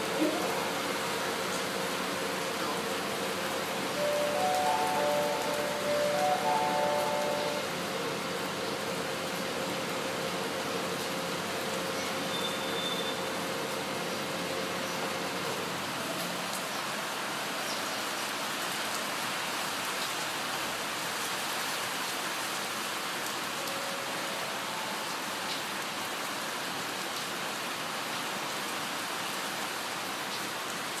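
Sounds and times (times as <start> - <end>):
heavy rain hissing: 0.0 - 31.0.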